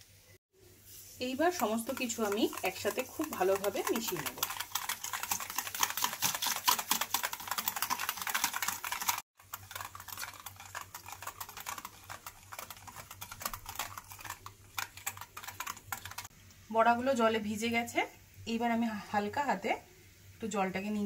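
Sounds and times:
utensil clicking against bowl: 0:01.6 - 0:16.3.

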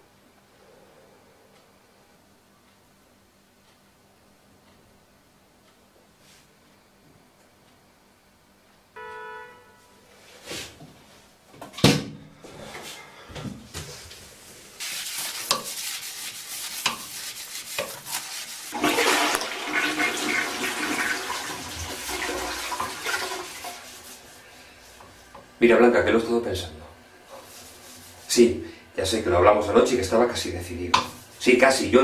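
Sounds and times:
toilet flushing: 0:18.3 - 0:25.0.

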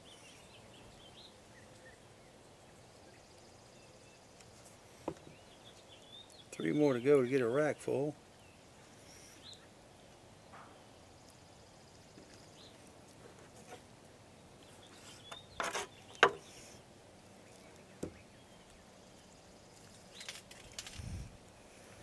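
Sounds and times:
faint background noise: 0:00.0 - 0:22.0
knife scraping: 0:14.9 - 0:16.6.

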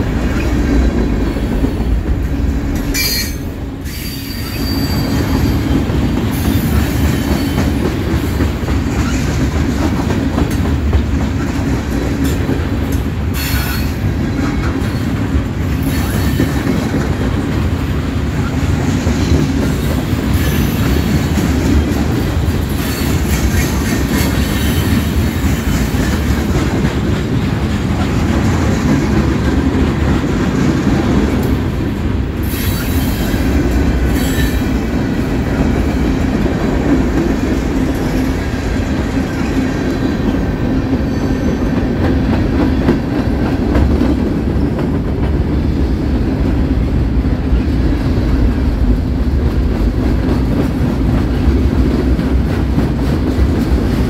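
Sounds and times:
train wheels rumbling on rails: 0:00.0 - 0:54.0
wheels squealing: 0:03.0 - 0:05.8.

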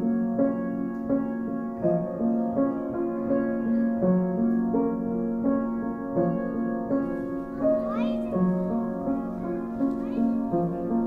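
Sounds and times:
slow gentle piano music: 0:00.0 - 0:11.0.

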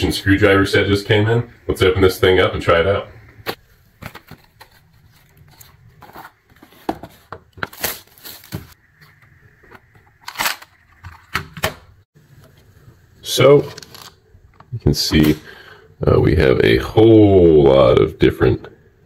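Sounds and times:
cardboard packaging rustling: 0:03.6 - 0:08.8.

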